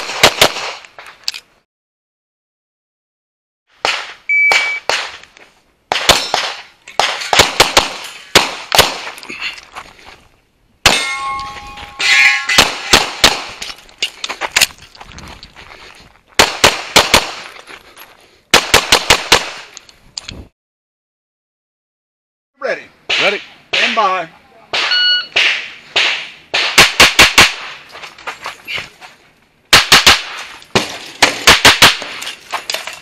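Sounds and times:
pistol shots: 0.0 - 0.8, 3.8 - 5.2, 5.9 - 9.1, 12.3 - 13.6, 16.4 - 17.4, 18.5 - 19.7, 24.7 - 27.8, 29.7 - 32.2
shot timer beep: 4.3 - 4.9, 24.9 - 25.3
ringing tone: 11.0 - 12.6, 24.9 - 25.3.

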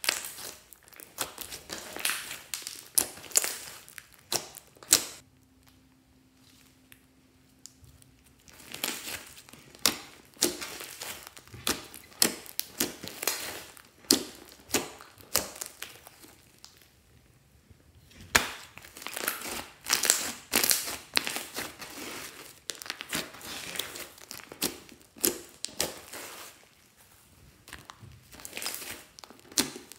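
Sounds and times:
hands squishing slime: 0.0 - 17.0, 18.1 - 29.9.

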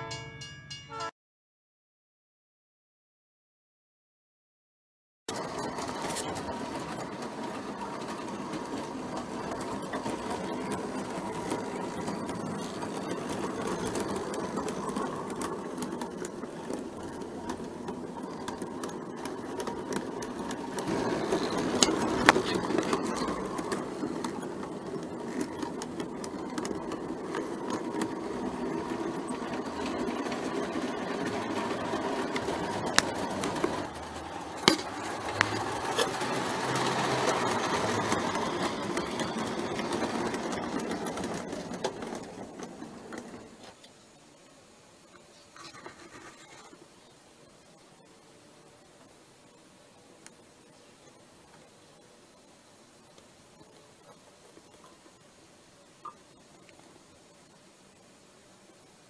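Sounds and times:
model train motor whirr: 5.3 - 44.0.

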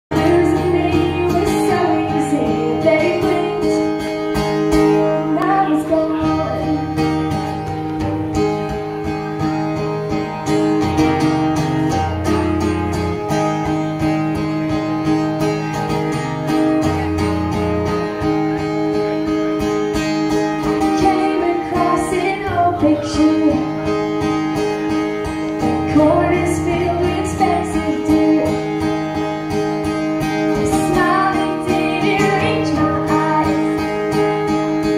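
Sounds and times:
woman singing: 0.1 - 4.1, 4.7 - 7.2, 20.6 - 23.8, 25.6 - 28.7, 30.5 - 34.9
acoustic guitar: 0.1 - 34.9.

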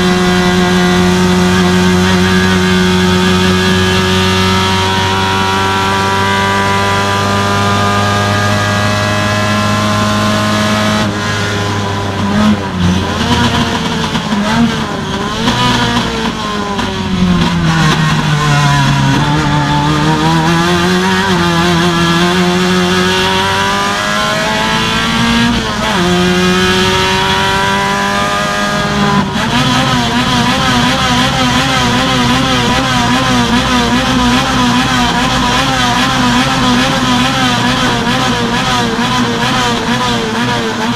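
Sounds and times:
race car engine revving: 0.0 - 40.9.

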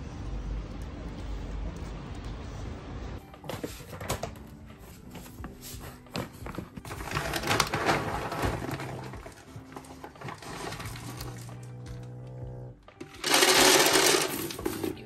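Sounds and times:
plastic bag crinkling: 6.9 - 11.6.

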